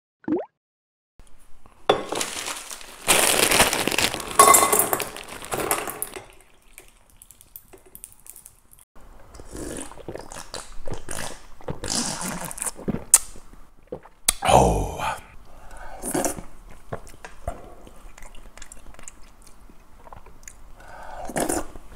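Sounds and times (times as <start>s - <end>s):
ice clinking against metal: 1.9s - 6.9s.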